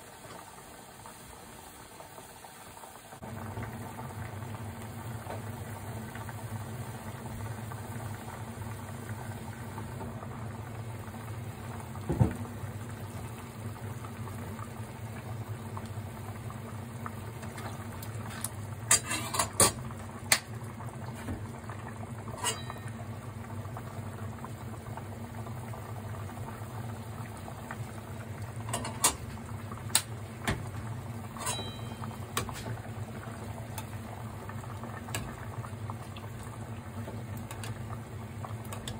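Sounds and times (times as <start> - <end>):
liquid bubbling in a pot: 0.0 - 38.9
metal ladle clinking on pot: 22.3 - 23.0, 31.4 - 32.6.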